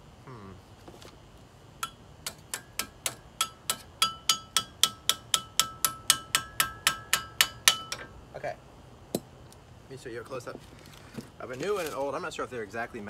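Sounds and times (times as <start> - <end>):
metal tool tapping brake caliper: 1.8 - 8.1.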